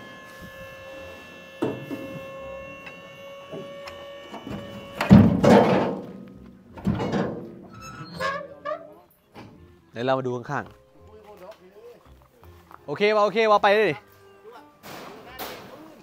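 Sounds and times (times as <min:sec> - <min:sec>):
steady humming tone: 0:00.0 - 0:07.7
knocks on metal truck body: 0:05.1 - 0:06.1.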